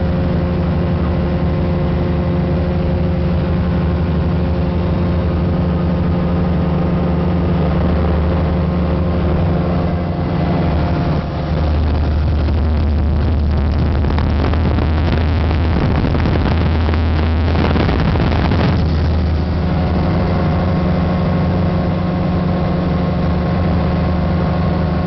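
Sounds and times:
rush of air: 0.0s - 22.2s
ultralight aircraft engine: 0.0s - 25.0s.

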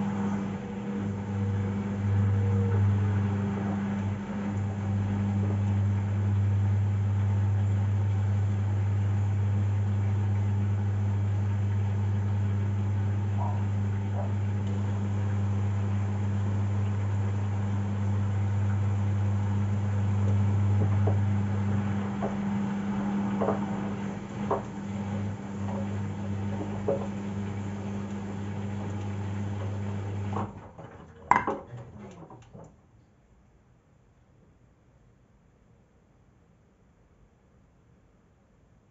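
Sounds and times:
washing machine humming: 0.0s - 32.7s
drum knocking softly: 20.3s - 23.8s.

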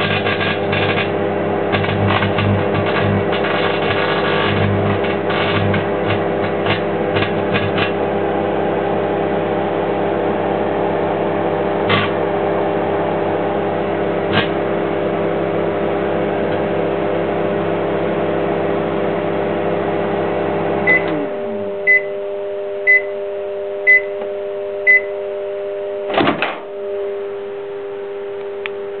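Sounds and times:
microwave oven humming: 0.0s - 29.0s
microwave beeps: 20.8s - 25.3s.

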